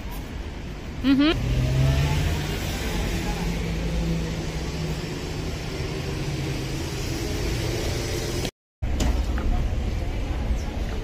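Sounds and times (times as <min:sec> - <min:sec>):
cars driving past: 0:01.2 - 0:08.5.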